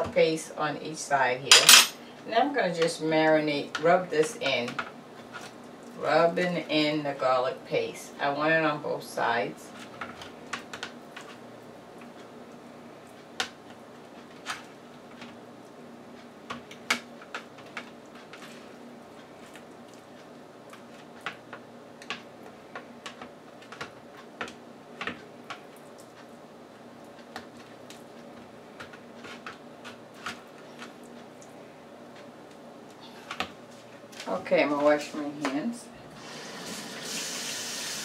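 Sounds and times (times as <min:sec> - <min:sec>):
faint steady hum: 0:00.0 - 0:38.0.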